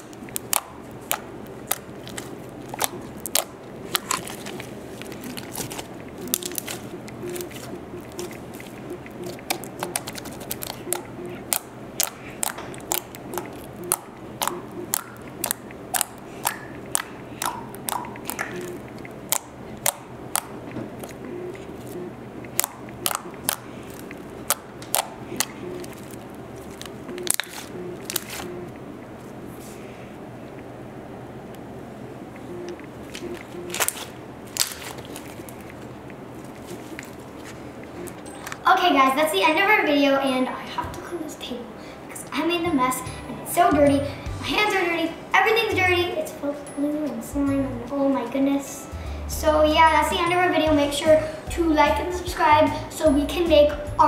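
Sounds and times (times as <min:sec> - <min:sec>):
slime clicking and popping: 0:00.0 - 0:21.2, 0:21.8 - 0:28.5.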